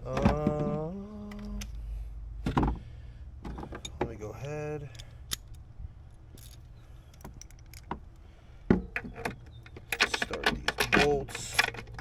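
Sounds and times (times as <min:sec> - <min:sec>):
metal tools clinking: 0:06.3 - 0:07.9, 0:09.0 - 0:12.0.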